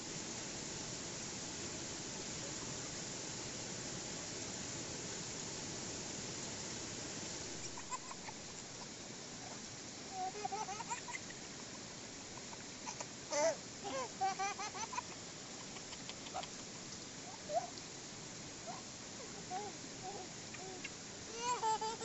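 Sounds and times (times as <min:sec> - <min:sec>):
small child laughing and babbling: 0:07.6 - 0:11.4, 0:12.4 - 0:16.6, 0:18.7 - 0:22.0.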